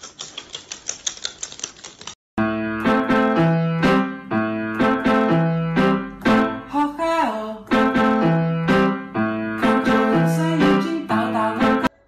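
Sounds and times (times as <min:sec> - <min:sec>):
rapid regular clicking: 0:00.0 - 0:02.2
piano music: 0:02.4 - 0:12.0.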